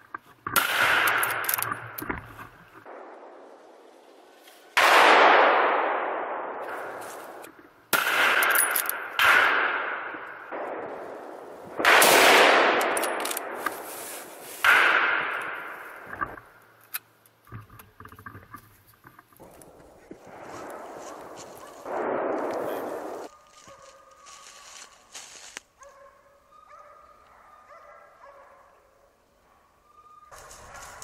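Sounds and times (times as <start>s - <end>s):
rifle shots echoing: 0.5s - 2.0s, 4.8s - 13.6s, 14.6s - 16.1s, 20.2s - 23.3s.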